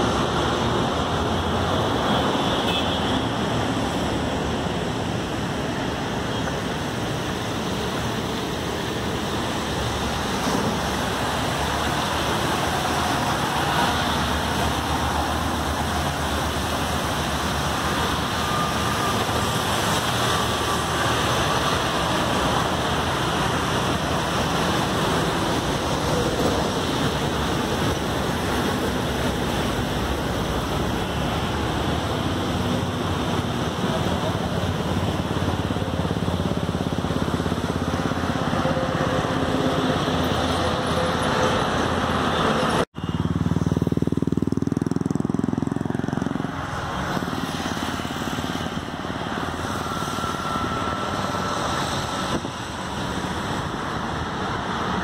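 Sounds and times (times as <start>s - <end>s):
road traffic hum: 0.0s - 55.0s
water running over rocks: 3.3s - 38.6s.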